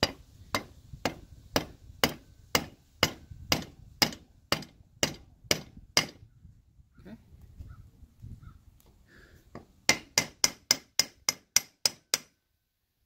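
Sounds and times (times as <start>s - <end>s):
rubber mallet tapping metal: 0.0s - 6.2s, 9.9s - 12.3s.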